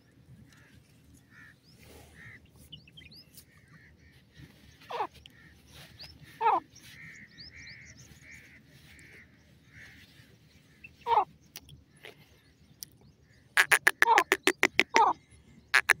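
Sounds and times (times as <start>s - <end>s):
francolin calling: 13.6s - 15.2s, 15.8s - 16.0s.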